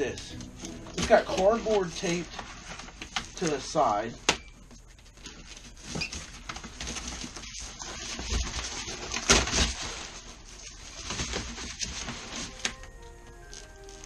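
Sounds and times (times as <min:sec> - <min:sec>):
cardboard and paper rustling: 0:00.0 - 0:04.1, 0:04.7 - 0:14.0
cardboard ripping: 0:01.0 - 0:03.5, 0:05.3 - 0:12.8.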